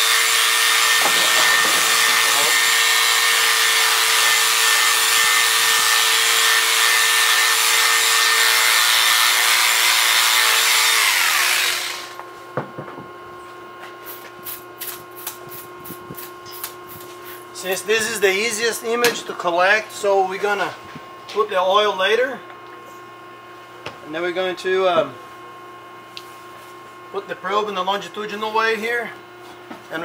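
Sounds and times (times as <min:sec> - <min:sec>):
electric clippers running: 0:00.0 - 0:12.3.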